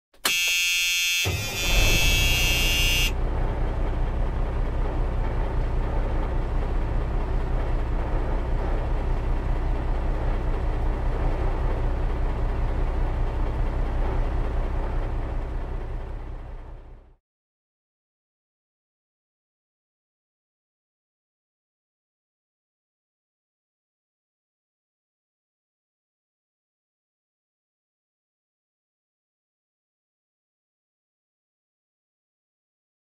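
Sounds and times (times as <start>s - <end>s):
vehicle horn: 0.2s - 3.2s
truck diesel engine rumble: 1.3s - 17.2s.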